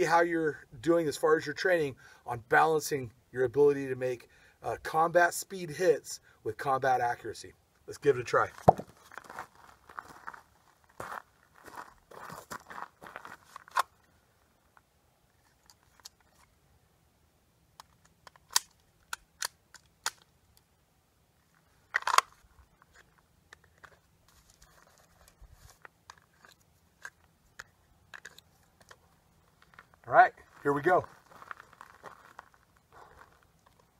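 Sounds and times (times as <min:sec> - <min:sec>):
faint clicks and crunches: 0:21.5 - 0:33.9.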